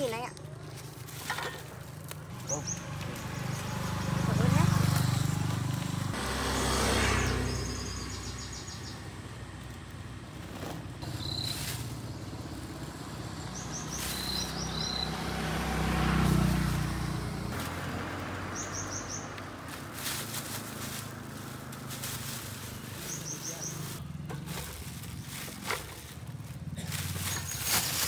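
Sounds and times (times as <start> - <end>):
vehicle engine passing: 1.0 - 28.0
small bird chirping: 7.2 - 9.2, 11.0 - 12.5, 13.4 - 15.2, 18.5 - 19.4, 23.0 - 24.0.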